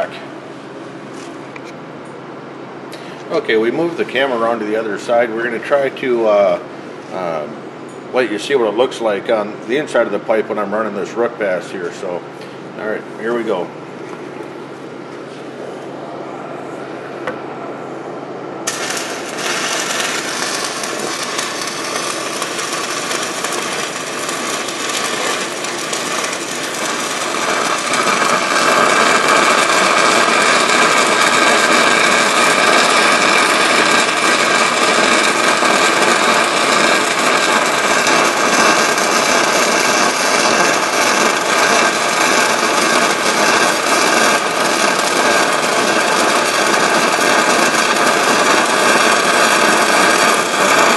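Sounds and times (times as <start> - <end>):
stick welding arc: 18.6 - 50.9.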